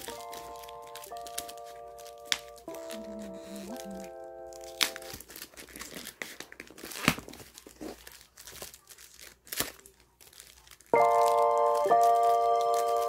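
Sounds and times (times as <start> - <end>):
background music: 0.0 - 5.2, 11.0 - 13.0
plastic wrap crinkling: 0.0 - 13.0.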